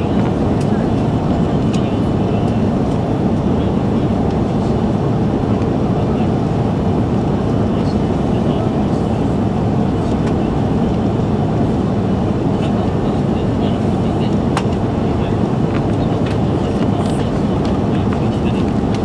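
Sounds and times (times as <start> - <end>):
jet engine and airflow noise in cabin: 0.0 - 19.0.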